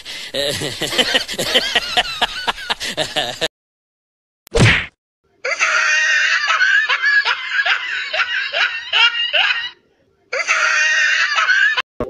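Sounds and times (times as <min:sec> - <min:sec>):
laughter sound effect: 0:00.4 - 0:03.5, 0:05.5 - 0:09.8, 0:10.4 - 0:11.8.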